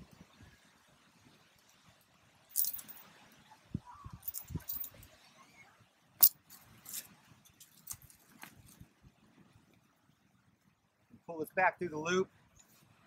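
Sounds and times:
metal carabiners clinking: 2.5s - 3.0s, 4.2s - 5.0s
webbing rustling: 4.2s - 5.0s.

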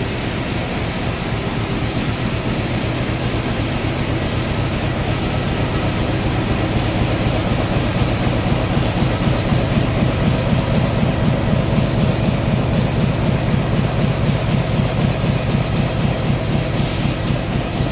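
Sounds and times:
printing machine clatter: 5.1s - 17.9s.

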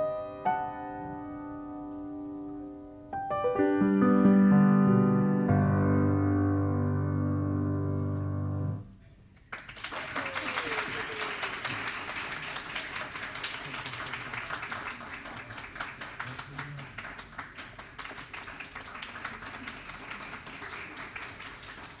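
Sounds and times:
audience applauding: 9.4s - 22.0s.

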